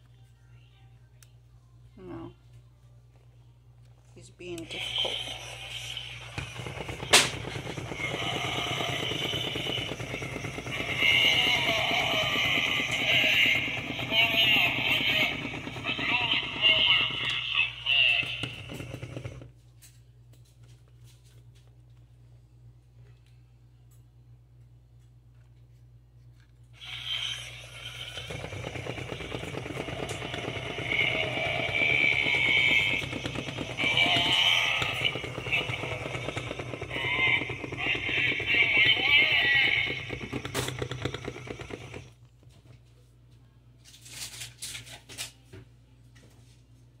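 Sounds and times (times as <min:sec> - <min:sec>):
faint low hum: 0:00.0 - 0:44.4
toy motor and gears rattling: 0:04.6 - 0:19.5, 0:26.8 - 0:42.2, 0:43.8 - 0:45.4.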